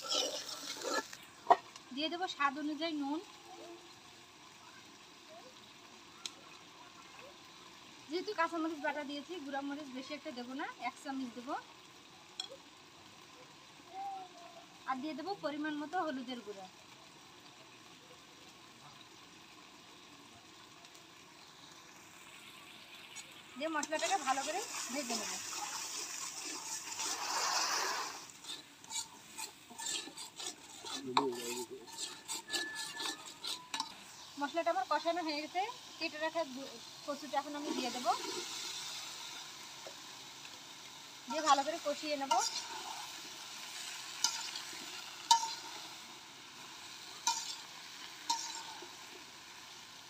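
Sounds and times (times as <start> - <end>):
spatula scraping metal pan: 0.0 - 1.2, 23.8 - 34.3, 41.5 - 45.9, 47.2 - 49.0
spice paste sizzling: 0.0 - 50.0
spatula striking metal pan: 28.4 - 34.0, 45.2 - 45.8, 47.2 - 48.9.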